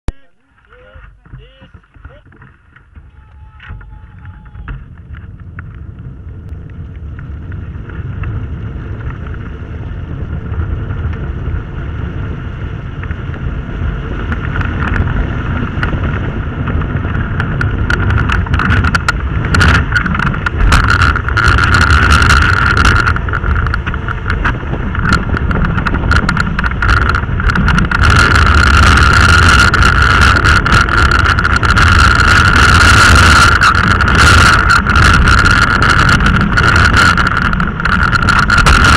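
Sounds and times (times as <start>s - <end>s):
high whine: 0.0s - 11.7s, 14.2s - 38.9s
tyre rumble on wet asphalt: 0.1s - 38.9s
knocks and rattles: 0.6s - 5.8s, 16.7s - 38.9s
wind rush: 0.6s - 38.9s.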